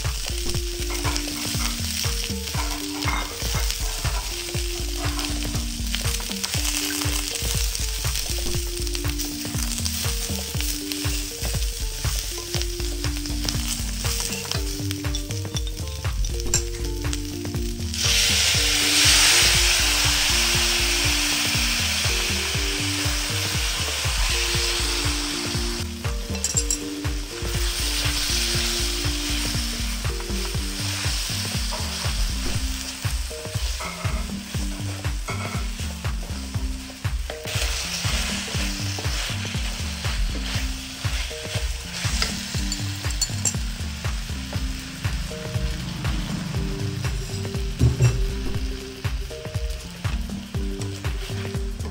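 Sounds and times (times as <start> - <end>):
food sizzling in a wok: 0.0 - 51.9
spatula scraping a wok: 0.8 - 7.9, 30.8 - 36.0, 36.9 - 43.1
sauce poured into hot pan: 17.8 - 35.8.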